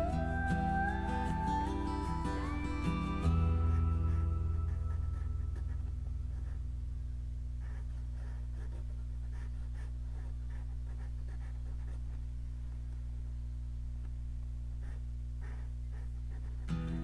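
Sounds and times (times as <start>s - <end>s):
steady low hum: 0.0s - 17.0s
pencil scratching on paper: 3.0s - 6.7s, 7.6s - 12.3s, 14.8s - 17.0s.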